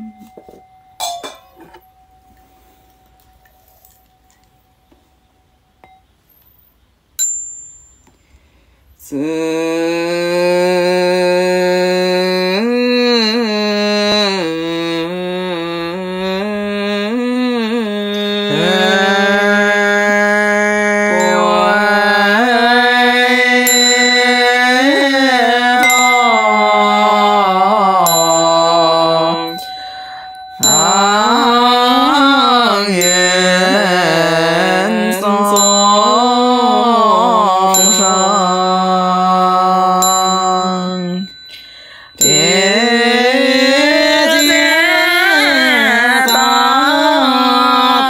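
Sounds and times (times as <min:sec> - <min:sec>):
small high chime: 0:00.0 - 0:06.6, 0:07.2 - 0:08.6, 0:21.0 - 0:48.0
liturgical chanting: 0:09.0 - 0:41.5, 0:42.1 - 0:48.0.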